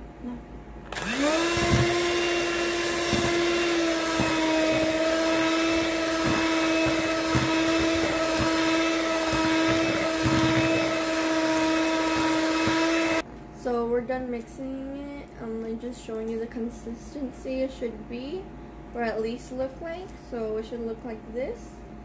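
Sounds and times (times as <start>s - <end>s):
electric hand mixer whine: 0.9s - 13.2s
mixer beaters knocking bowl: 1.0s - 13.2s.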